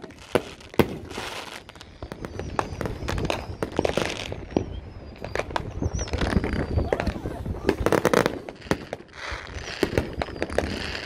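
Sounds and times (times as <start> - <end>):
fireworks popping and banging: 0.0 - 11.0
thin wavering high whistle: 1.7 - 7.9, 9.3 - 11.0.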